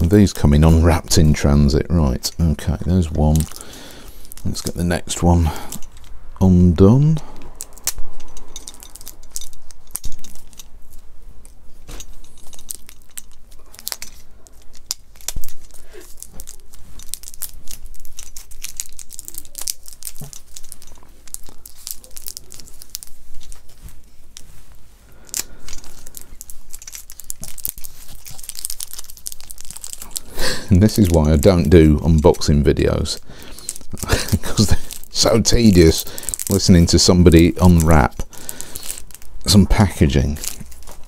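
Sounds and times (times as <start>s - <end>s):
bubble wrap crinkling: 0.0s - 41.0s
bubble wrap tearing: 8.7s - 41.0s.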